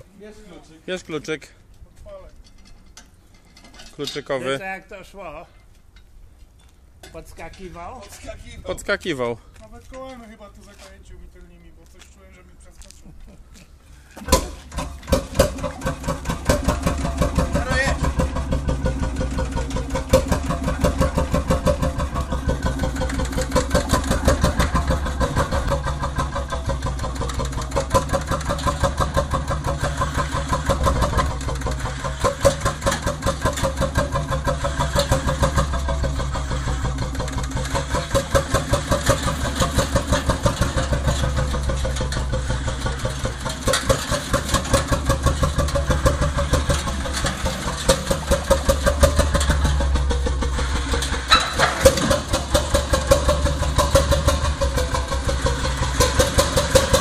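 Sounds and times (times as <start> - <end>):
tractor engine popping beat: 14.3 - 57.0.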